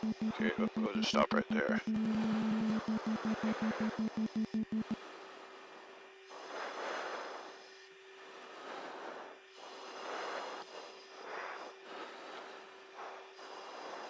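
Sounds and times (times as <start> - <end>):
aircraft engine tone: 0.0 - 5.0.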